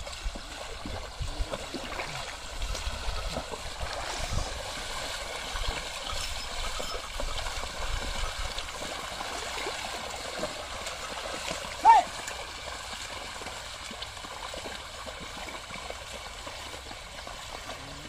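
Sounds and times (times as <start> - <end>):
muddy water sloshing and splashing: 0.0 - 18.0.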